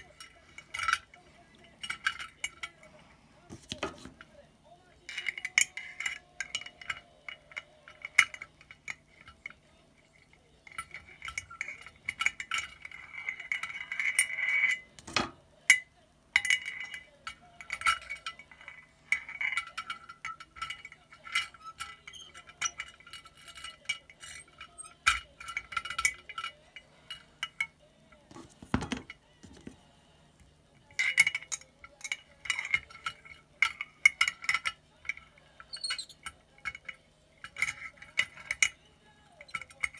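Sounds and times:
clinks against glass bottle: 10.6 - 29.8, 30.8 - 39.9.

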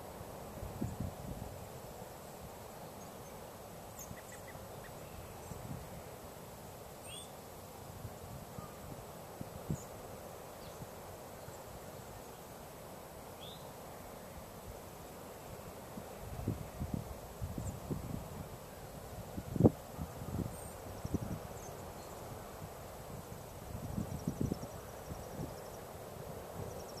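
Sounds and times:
wind noise on microphone: 0.6 - 1.7, 5.5 - 6.0, 16.0 - 21.6, 22.6 - 25.6
faint bird calls: 4.0 - 5.6, 7.0 - 7.4.

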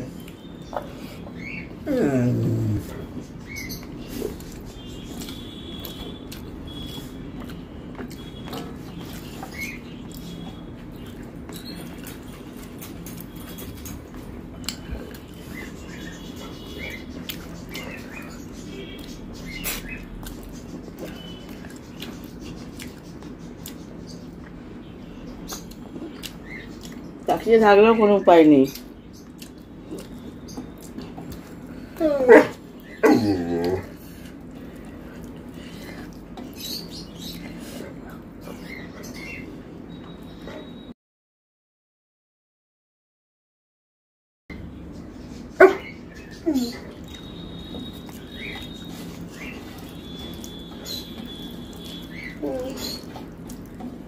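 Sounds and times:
dog whining: 1.4 - 3.0, 31.8 - 34.0, 45.6 - 47.0, 52.2 - 53.2.

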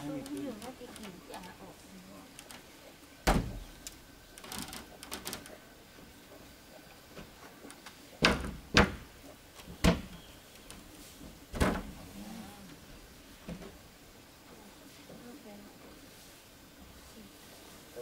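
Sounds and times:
knocks on wooden wall: 3.2 - 3.6, 8.2 - 9.1.

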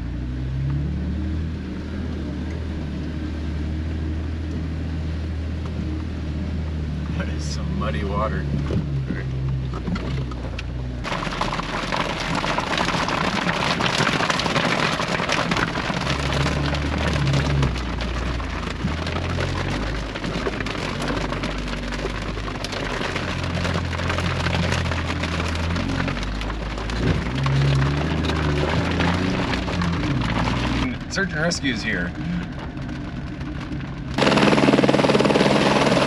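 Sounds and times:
car engine running low: 0.0 - 36.0
heavy rain on windshield: 5.2 - 36.0.

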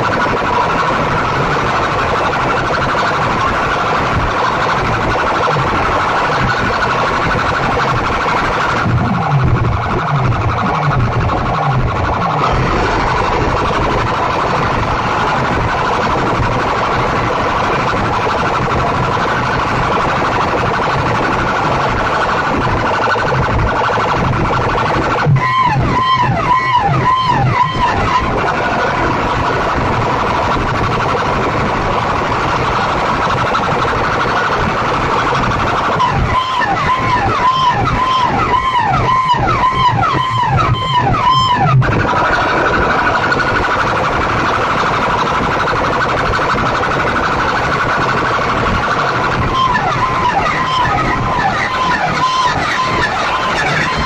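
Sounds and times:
loud steady electronic tone: 0.0 - 54.0
siren-like warble: 0.0 - 54.0.

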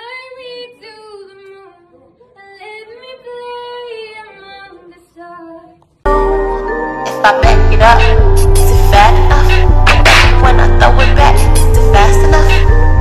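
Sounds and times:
girl singing unaccompanied: 0.0 - 5.9
loud music with heavy beat: 6.1 - 13.0.

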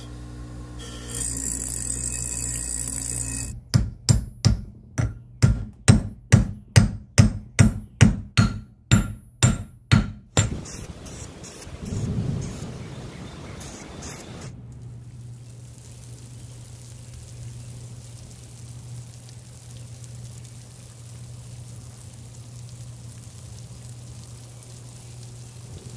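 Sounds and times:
bench grinder grinding steel: 0.0 - 3.5
hammer blows with metallic ring: 6.8 - 10.7.

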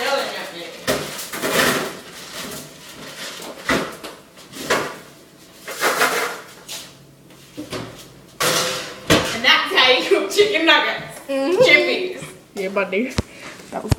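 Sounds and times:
kitchen knocks and clatters: 0.8 - 6.7, 7.5 - 9.5.

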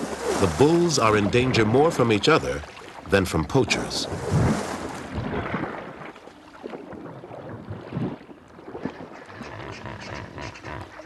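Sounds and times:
hippos splashing in water: 0.0 - 11.0.

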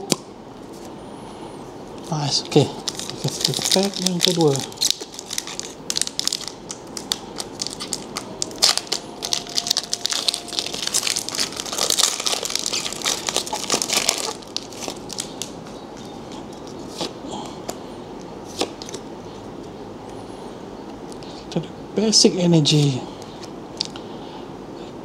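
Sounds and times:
foil wrapper tearing and crinkling: 2.8 - 15.6.

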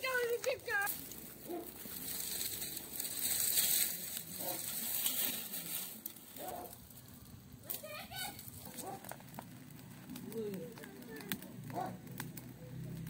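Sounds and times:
straw burning crackling and hissing: 0.0 - 13.0.

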